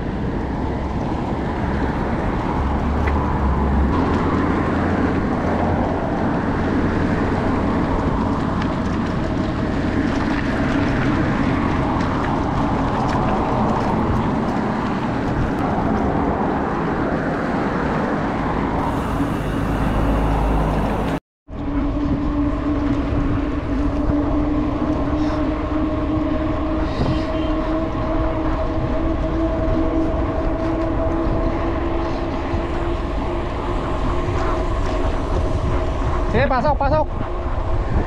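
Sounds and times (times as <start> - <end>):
road noise: 0.0 - 38.0
wind rushing over microphone: 0.0 - 38.0
steady hum: 18.8 - 21.2.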